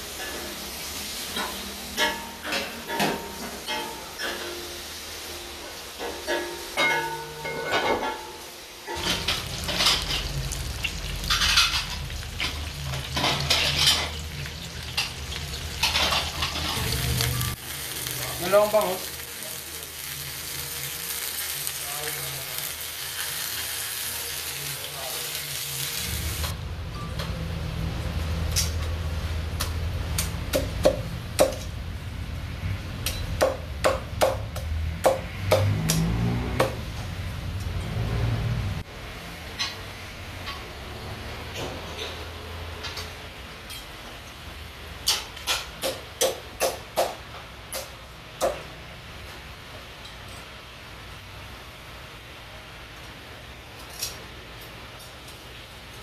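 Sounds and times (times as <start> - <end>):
food sizzling on a griddle: 0.0 - 26.5.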